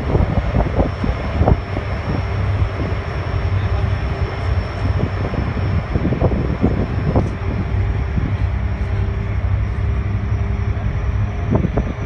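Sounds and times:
faint high whine: 0.0s - 12.0s
ferry engines droning: 0.0s - 12.0s
wind buffeting microphone: 0.0s - 12.0s.

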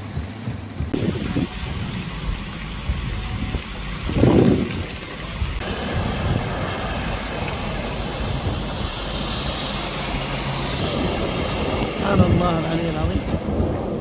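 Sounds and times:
heavy rain on road: 0.0s - 14.0s
truck tyres hissing on wet road: 0.0s - 14.0s.

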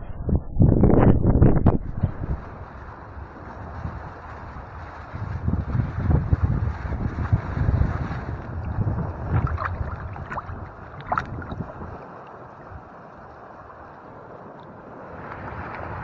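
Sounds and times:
wind rumbling on microphone: 0.0s - 16.0s
water splashing in rock pool: 2.1s - 12.8s.

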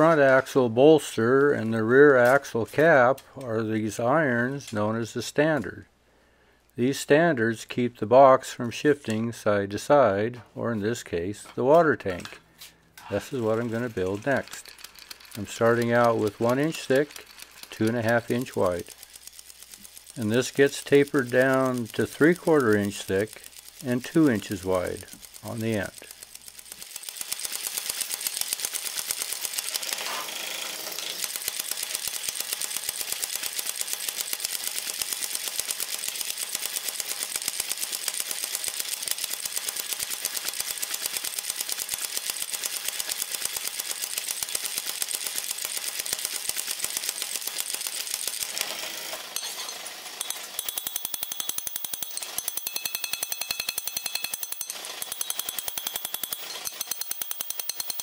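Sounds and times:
hand hammer ringing on anvil: 49.4s - 58.0s
power hammer pounding iron: 50.2s - 58.0s.

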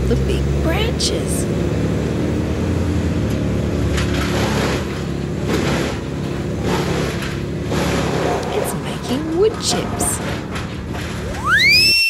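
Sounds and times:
wood chipper engine running: 0.0s - 12.0s.

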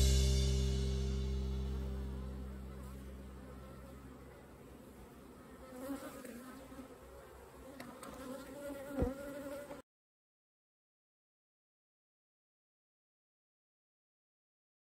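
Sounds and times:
bee wings buzzing: 2.4s - 9.8s.

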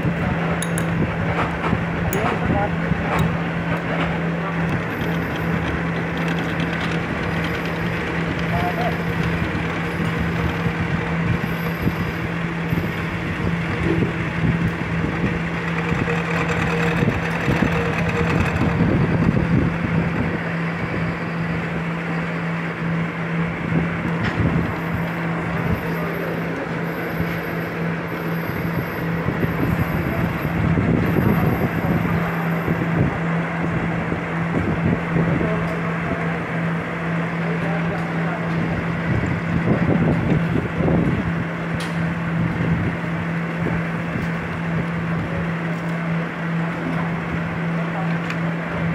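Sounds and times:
motor hum: 2.9s - 20.4s
milling machine cutting metal: 3.1s - 19.6s.

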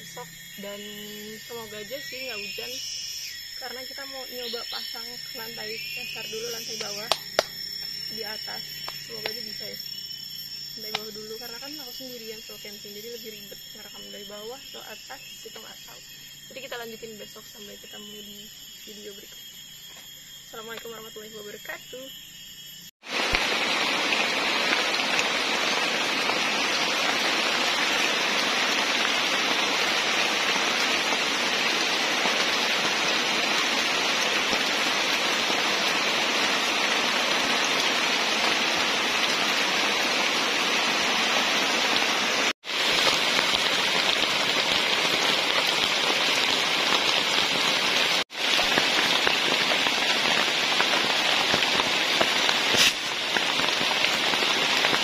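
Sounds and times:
rain on foliage: 23.0s - 55.0s.

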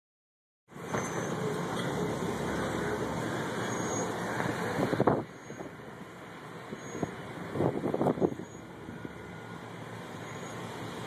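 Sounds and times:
road traffic rumble: 0.7s - 11.0s.

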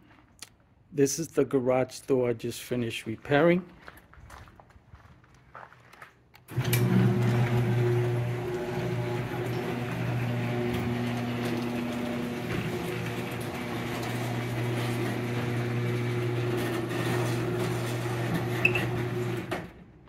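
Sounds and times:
garage door opener motor humming: 6.5s - 19.8s.

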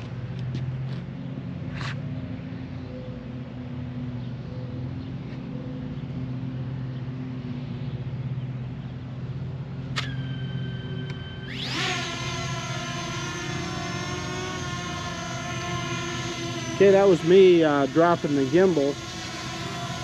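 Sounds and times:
drone motors high whine: 0.0s - 20.0s
steady electronic beep: 10.1s - 12.0s.

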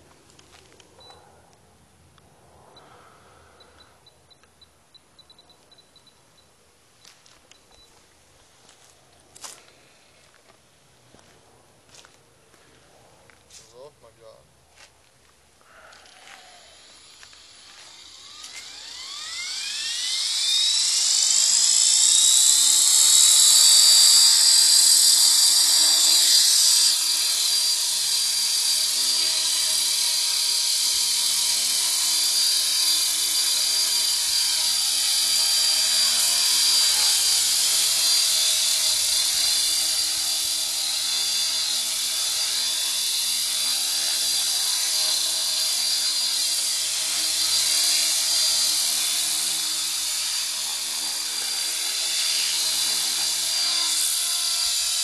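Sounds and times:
model helicopter motor whine: 15.7s - 55.0s.

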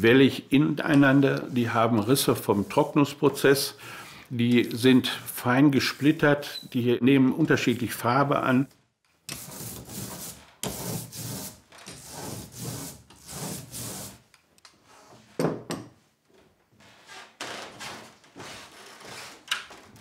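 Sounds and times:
ink roller rasping strokes: 1.1s - 3.0s, 9.3s - 14.2s.

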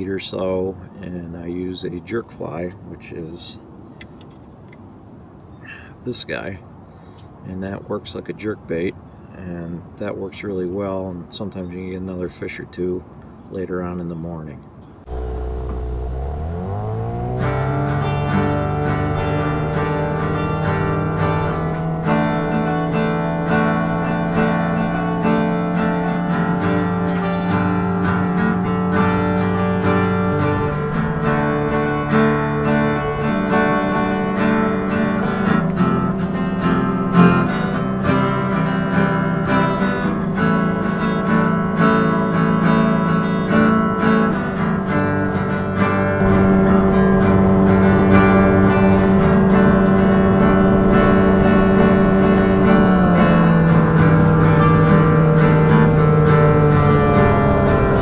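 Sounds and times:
acoustic guitar strumming: 15.1s - 58.0s.

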